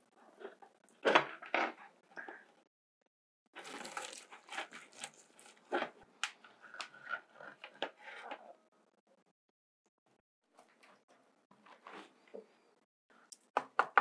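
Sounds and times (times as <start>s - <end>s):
plastic bucket crackling: 3.6s - 8.4s.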